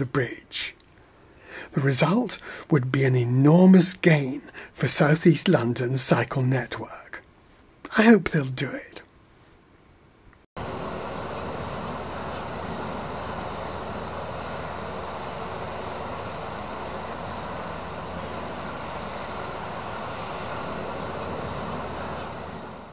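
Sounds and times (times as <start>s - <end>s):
steady rushing traffic noise: 10.6s - 22.9s.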